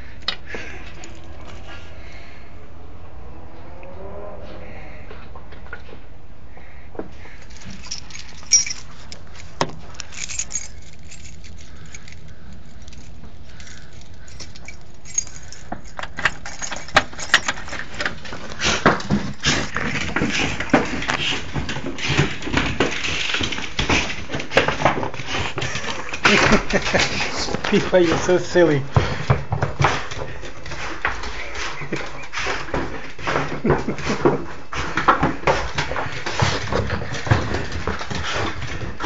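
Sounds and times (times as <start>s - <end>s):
metal pieces jingling and clicking: 0.8s - 1.4s, 7.4s - 28.8s.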